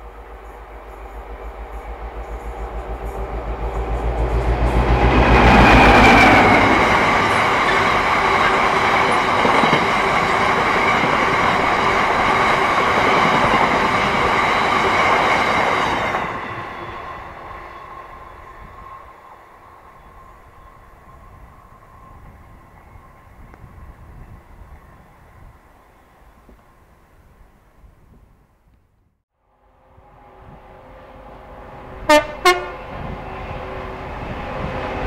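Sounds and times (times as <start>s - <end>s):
diesel locomotive engine throb: 0.0s - 10.7s
train wheels rumbling and rattling: 0.0s - 19.0s.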